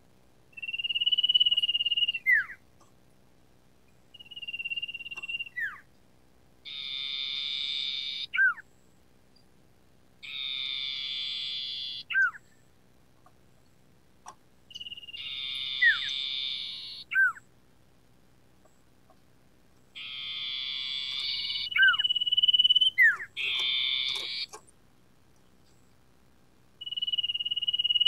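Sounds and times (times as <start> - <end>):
bird buzzy trills: 0.5 - 2.6, 3.9 - 5.9, 6.6 - 9.5, 10.2 - 12.7, 14.2 - 17.5, 19.9 - 24.8, 26.8 - 28.0
bird steady high whistle: 0.5 - 2.6, 4.1 - 5.9, 6.6 - 8.8, 10.2 - 12.6, 14.7 - 17.5, 20.0 - 24.6, 26.8 - 28.0
bird down-slurred whistles: 0.6 - 2.6, 4.1 - 5.9, 6.7 - 8.6, 10.2 - 12.5, 14.7 - 17.4, 20.0 - 24.6, 26.8 - 28.0.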